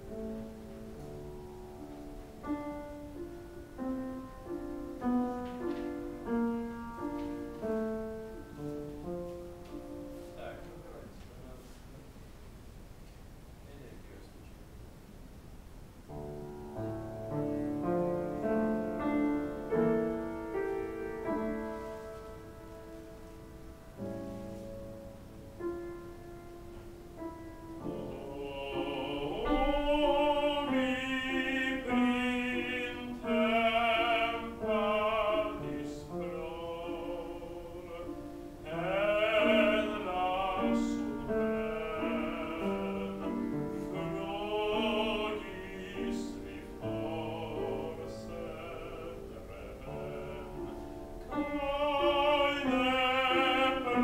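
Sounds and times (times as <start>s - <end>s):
grand piano: 0.0s - 54.0s
classical voice singing: 16.2s - 54.0s.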